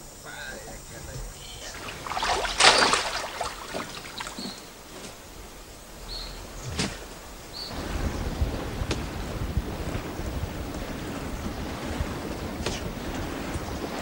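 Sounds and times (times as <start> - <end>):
wind and waves: 0.0 - 14.0
water splash: 1.5 - 5.0.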